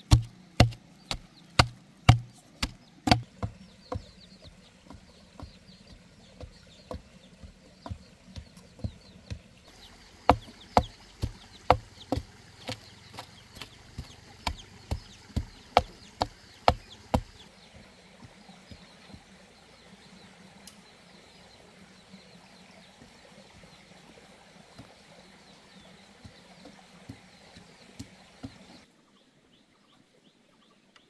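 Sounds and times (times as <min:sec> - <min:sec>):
wooden stick striking soil: 0:00.0 - 0:17.4.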